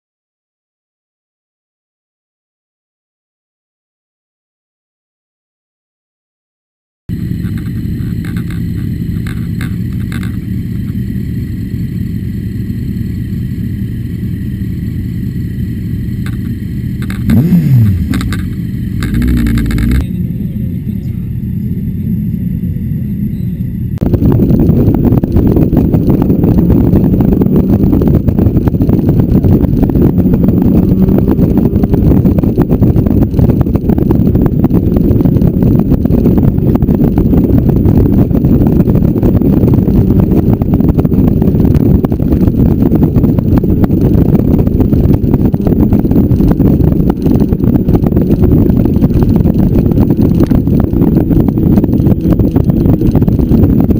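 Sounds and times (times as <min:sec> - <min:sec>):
wind rushing over microphone: 0:07.1 - 0:20.3, 0:22.5 - 0:53.9
motorcycle engines idling: 0:07.1 - 0:24.0
motorcycle engine revving: 0:07.1 - 0:53.9
motorcycle riding at road speed: 0:07.1 - 0:53.9.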